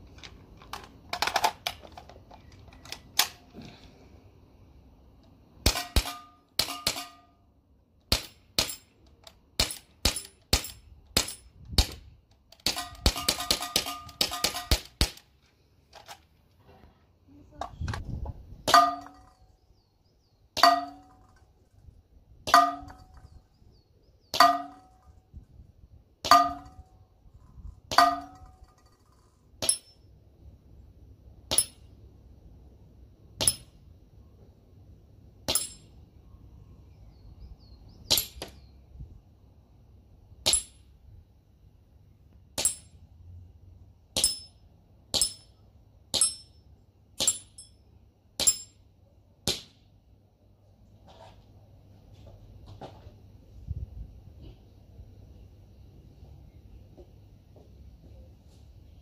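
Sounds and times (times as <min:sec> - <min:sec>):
bbs clanging on metal target: 0:44.2 - 0:44.6, 0:45.2 - 0:46.6, 0:47.2 - 0:47.8, 0:48.4 - 0:48.8.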